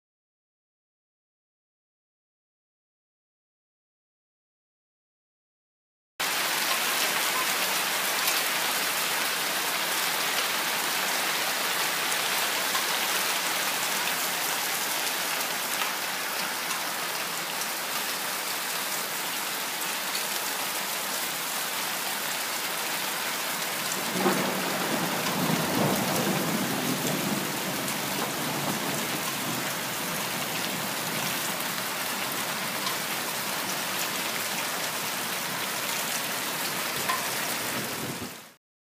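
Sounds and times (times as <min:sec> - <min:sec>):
hail ticking on ground: 0:23.6 - 0:34.9.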